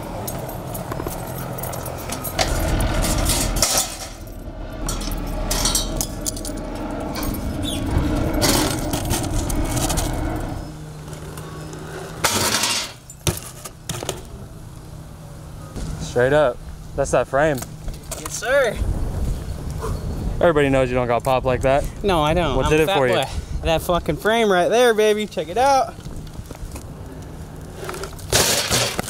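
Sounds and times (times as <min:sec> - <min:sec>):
metal clanking and rattling: 0:00.3 - 0:10.6, 0:27.9 - 0:29.0
bike clattering on rack: 0:02.0 - 0:06.6, 0:12.2 - 0:14.3, 0:27.9 - 0:29.0.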